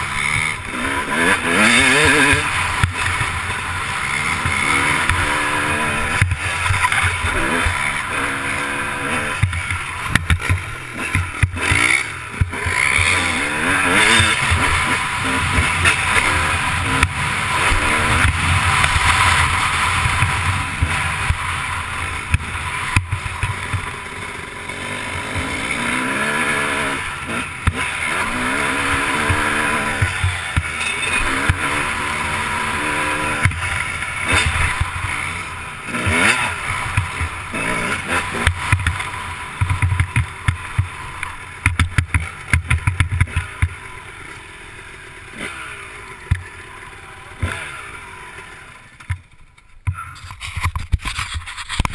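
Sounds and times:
motocross engine revving: 0:00.0 - 0:51.9
sharp knocks and rattles: 0:41.6 - 0:43.8.

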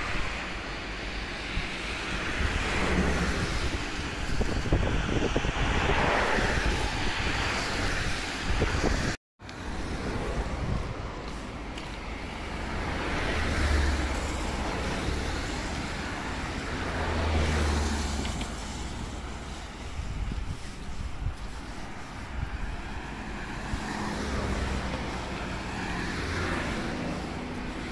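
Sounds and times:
road vehicles passing: 0:00.0 - 0:27.9
wind rumbling on microphone: 0:00.0 - 0:27.9.

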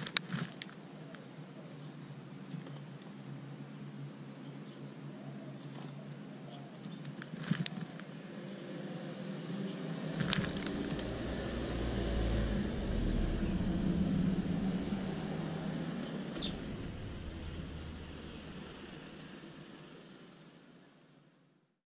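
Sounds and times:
passing car rumble: 0:08.2 - 0:20.5
bird wing flutters: 0:10.0 - 0:11.4.

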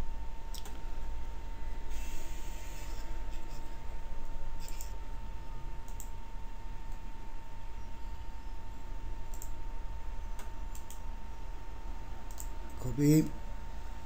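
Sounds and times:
low hum: 0:00.0 - 0:14.0
computer mouse clicks: 0:00.5 - 0:00.8, 0:04.6 - 0:05.0, 0:05.8 - 0:06.1, 0:09.2 - 0:09.6, 0:10.4 - 0:11.0, 0:12.3 - 0:12.8.

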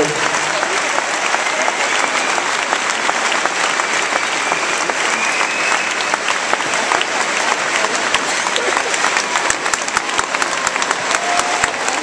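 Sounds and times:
audience applauding: 0:00.0 - 0:12.0
high drawn-out whistles: 0:04.4 - 0:06.1.

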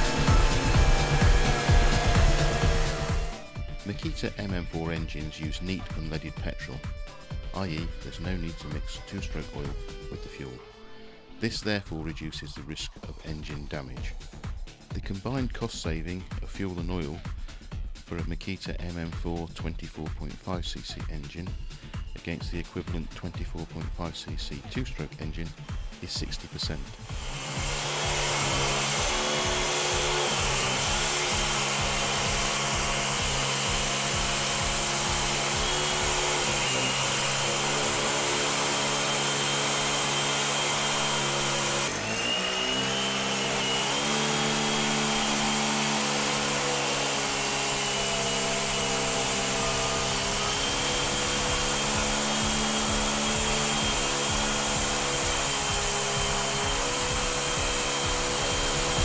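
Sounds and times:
small four-stroke engine running: 0:00.0 - 0:03.9, 0:24.9 - 0:59.0
background music: 0:00.0 - 0:59.0.

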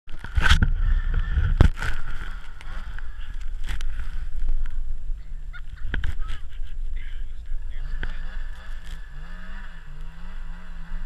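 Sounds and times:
wind noise on microphone: 0:00.1 - 0:08.2
snowmobile engine running: 0:00.1 - 0:11.0.

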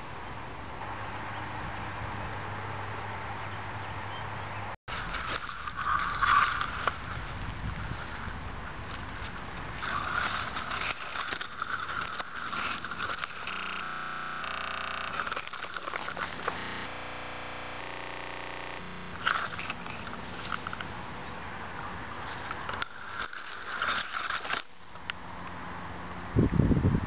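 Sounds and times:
dry grass rustling: 0:04.9 - 0:17.8, 0:18.9 - 0:25.3
camera handling noise: 0:22.3 - 0:24.7.

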